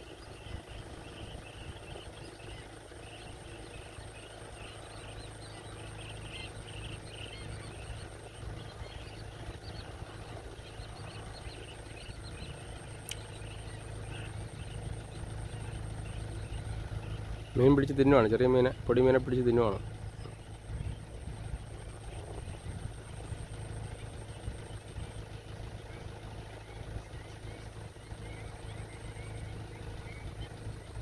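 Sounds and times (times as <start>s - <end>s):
flock of birds calling: 0.0s - 31.0s
steady low hum: 0.0s - 31.0s.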